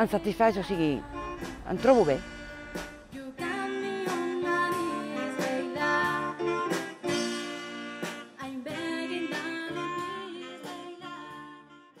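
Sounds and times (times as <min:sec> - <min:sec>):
instrumental music: 0:00.0 - 0:12.0
person singing: 0:03.0 - 0:07.1.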